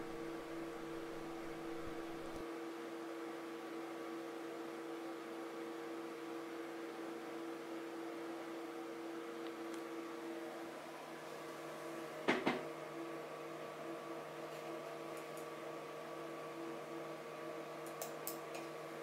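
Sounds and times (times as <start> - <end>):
background hiss: 0.0 - 2.4
electrical hum: 0.0 - 2.5.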